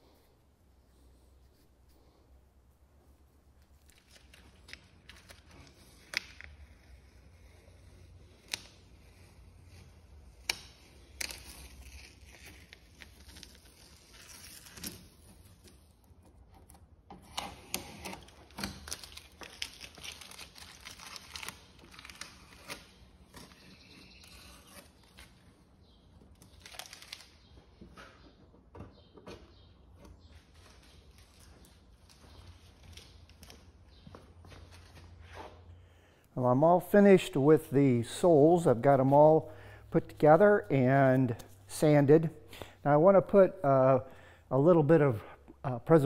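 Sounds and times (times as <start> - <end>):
tape crumpled in hand: 3.8 - 15.9, 18.0 - 25.6, 26.3 - 27.5
masking tape peeling off: 3.8 - 16.1, 17.2 - 27.6.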